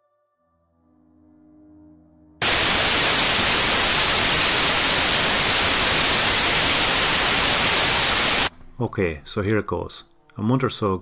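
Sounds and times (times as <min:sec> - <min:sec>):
tv static hiss: 0:02.4 - 0:08.5.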